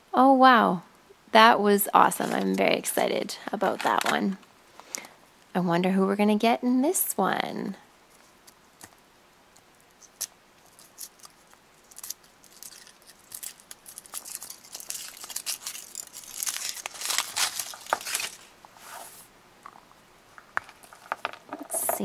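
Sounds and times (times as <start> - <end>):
foil wrapper crinkling and tearing: 10.0 - 18.5.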